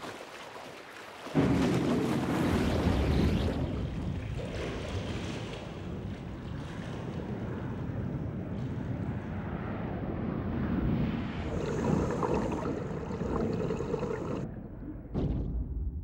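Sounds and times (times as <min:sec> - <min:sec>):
seawater churning: 0:11.4 - 0:14.5
low underwater rumble: 0:11.4 - 0:16.0.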